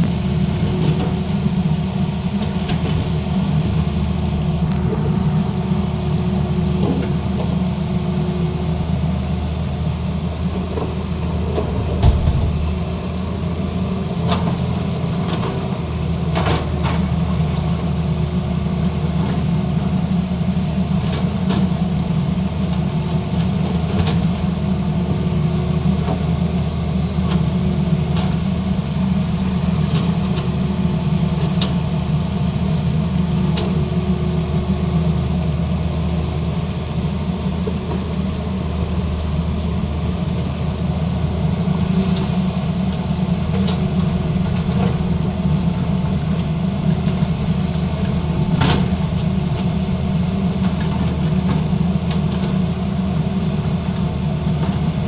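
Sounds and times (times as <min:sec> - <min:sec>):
excavator diesel engine running: 0:00.0 - 0:55.0
dull thump: 0:11.9 - 0:12.7.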